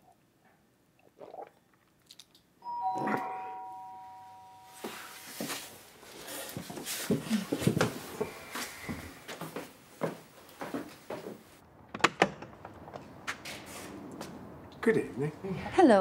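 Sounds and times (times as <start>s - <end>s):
two-note doorbell chime: 2.6s - 5.6s
shuffling and knocking movement: 4.8s - 11.5s.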